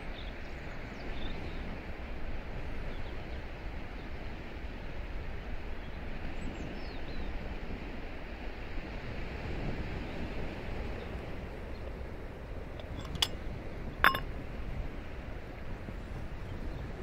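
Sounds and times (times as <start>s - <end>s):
wind rumble on microphone: 0.0s - 17.0s
distant surf: 7.2s - 17.0s.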